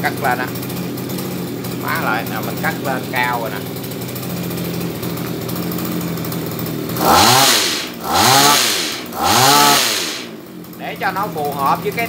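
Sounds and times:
hedge trimmer engine idling and revving: 0:00.0 - 0:12.0.

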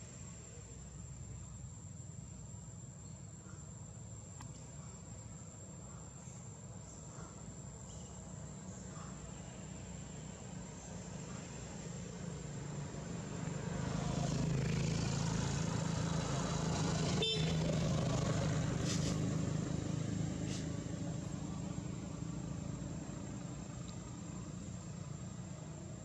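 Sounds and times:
motorbike engine passing: 0:09.3 - 0:26.0.

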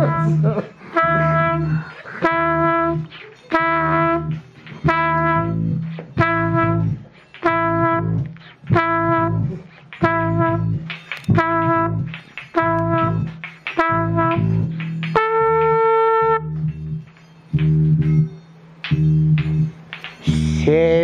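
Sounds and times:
low bass part: 0:00.0 - 0:21.0
trumpet short blasts: 0:01.0 - 0:05.6, 0:06.2 - 0:10.6, 0:11.3 - 0:12.0, 0:15.2 - 0:16.5.

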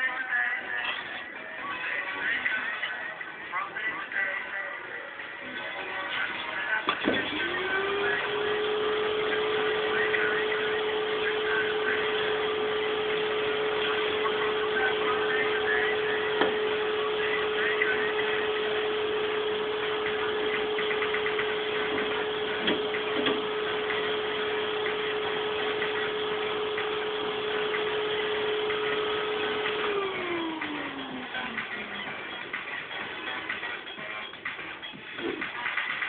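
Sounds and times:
electric motor humming: 0:07.0 - 0:33.6.

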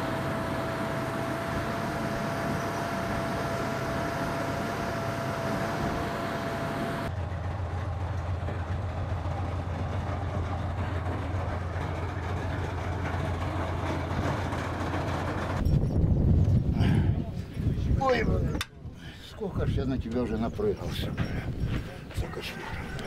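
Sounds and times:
armoured vehicle engine and tracks: 0:00.0 - 0:16.6.

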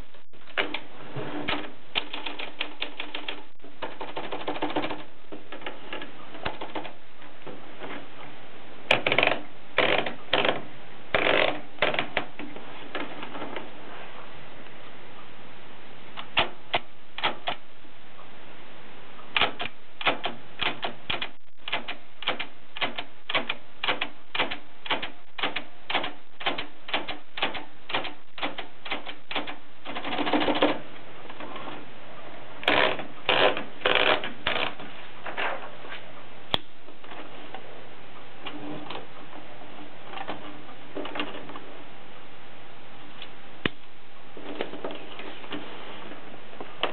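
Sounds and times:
typewriter keystrokes: 0:01.5 - 0:05.1, 0:16.2 - 0:17.6, 0:19.3 - 0:30.8.

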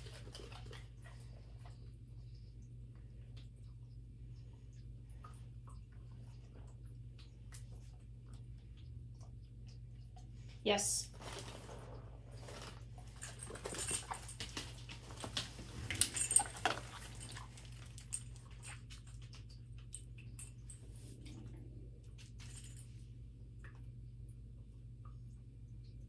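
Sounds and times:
light jingling: 0:13.0 - 0:21.0.

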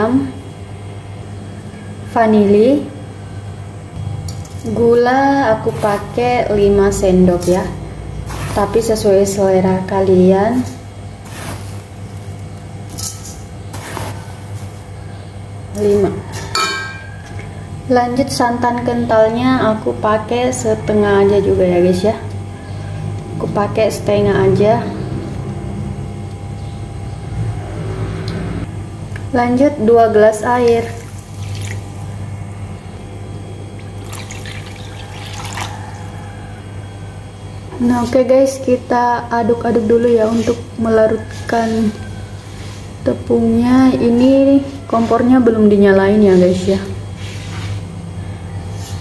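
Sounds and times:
steady low hum: 0:00.0 - 0:49.0
water trickling into batter: 0:30.9 - 0:32.0, 0:33.8 - 0:36.2.

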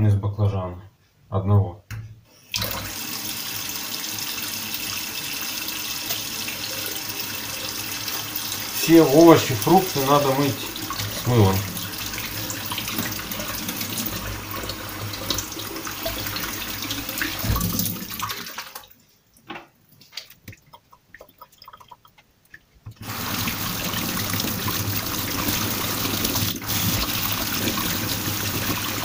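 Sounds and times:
tap water running into sink: 0:02.5 - 0:18.9, 0:22.9 - 0:29.0.

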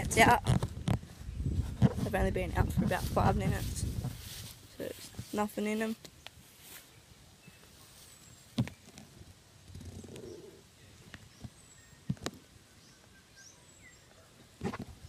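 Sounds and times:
birds chirping faintly: 0:04.6 - 0:15.0.

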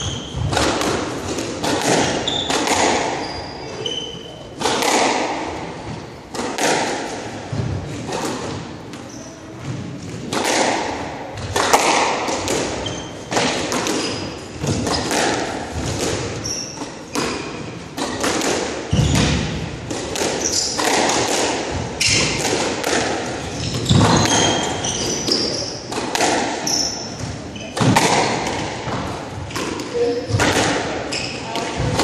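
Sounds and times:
shoes squeaking on wooden floor: 0:00.0 - 0:00.6, 0:02.0 - 0:04.4, 0:12.8 - 0:13.4, 0:18.9 - 0:19.4, 0:23.4 - 0:26.0, 0:31.0 - 0:31.6
squash ball hits: 0:00.0 - 0:32.0.

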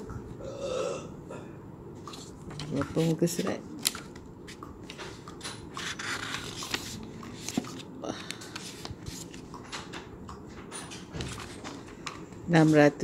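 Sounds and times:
book pages flipping: 0:02.0 - 0:09.6, 0:11.2 - 0:11.9.

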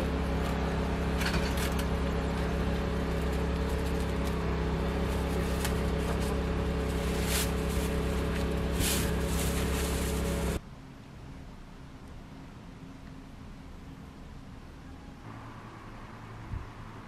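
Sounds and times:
low mechanical hum: 0:00.0 - 0:17.0
cling film ripping: 0:05.0 - 0:10.6.

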